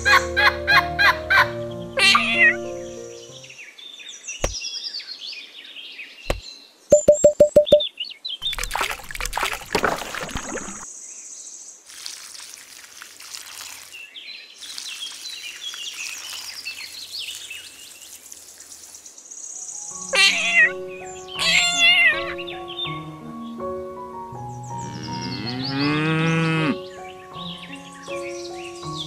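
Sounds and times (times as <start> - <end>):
birds chirping: 1.6 - 11.2, 13.9 - 23.7, 24.4 - 29.0
water pouring onto soil: 8.4 - 10.9, 11.8 - 19.2
cat meowing: 20.2 - 20.8, 21.4 - 22.4.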